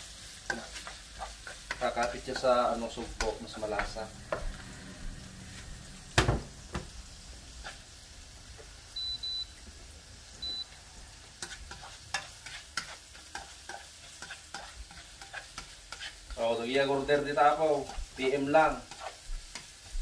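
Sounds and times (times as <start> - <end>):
onion and garlic sizzling in oil: 0.0 - 20.0
spatula knocking and scraping pan: 0.4 - 4.6, 11.4 - 17.2, 17.8 - 20.0.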